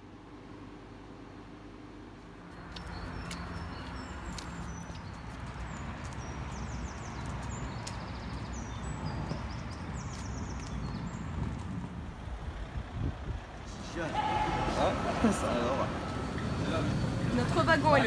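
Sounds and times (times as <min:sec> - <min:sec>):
low street rumble: 0:00.0 - 0:18.0
small birds chirping and twittering: 0:02.5 - 0:12.0.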